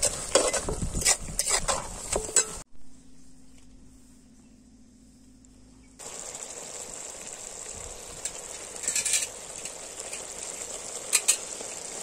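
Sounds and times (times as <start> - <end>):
gravy sizzling in a pan: 6.0 - 12.0.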